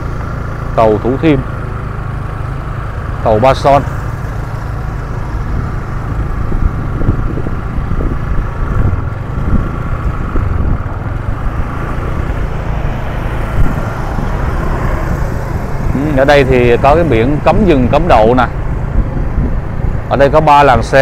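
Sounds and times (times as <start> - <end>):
road traffic noise: 0.0 - 21.0.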